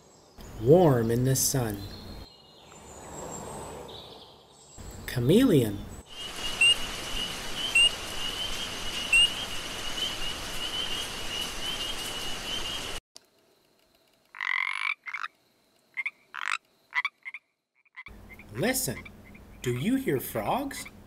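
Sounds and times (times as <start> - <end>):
frogs croaking: 6.1 - 13.0, 14.3 - 19.9.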